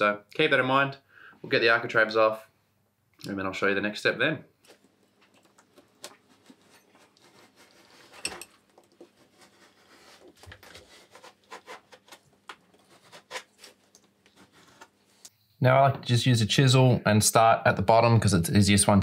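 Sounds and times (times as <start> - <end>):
utility knife scraping: 5.9 - 15.2.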